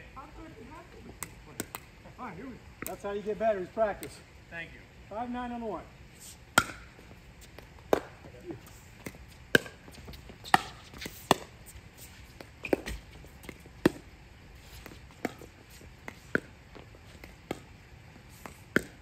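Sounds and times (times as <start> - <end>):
paddles hitting plastic ball: 7.5 - 8.3, 9.0 - 11.6, 18.7 - 19.0.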